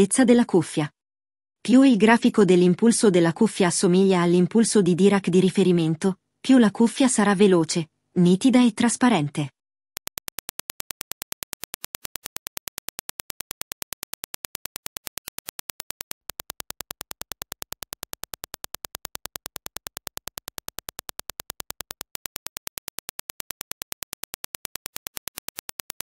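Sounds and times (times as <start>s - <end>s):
rapid train of sharp clicks: 10.0s - 26.0s.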